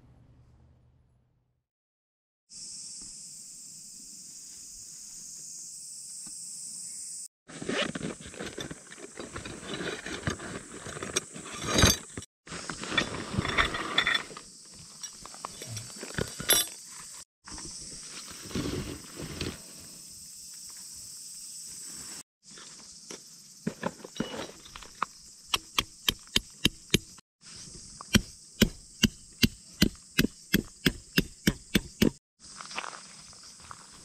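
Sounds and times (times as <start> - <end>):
hammer striking tent pegs: 28.1 - 32.2.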